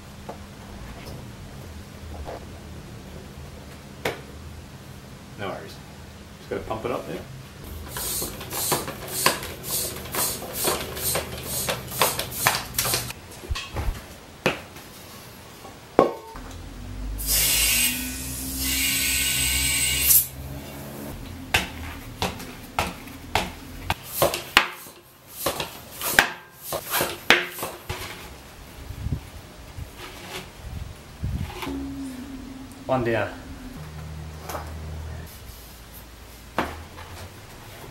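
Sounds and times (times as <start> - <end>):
air inflator hissing: 7.7 - 13.1, 17.2 - 20.3.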